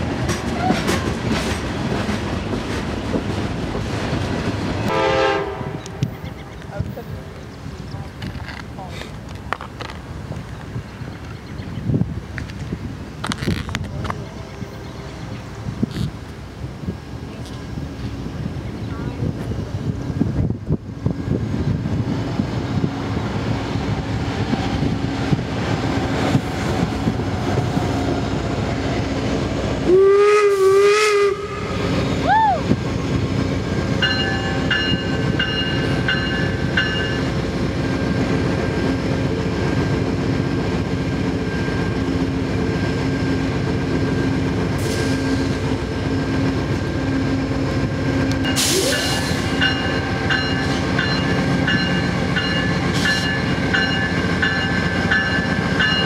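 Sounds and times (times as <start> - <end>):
diesel locomotive engine running: 0.0 - 56.0
train horn blast: 4.9 - 6.1, 29.8 - 31.9.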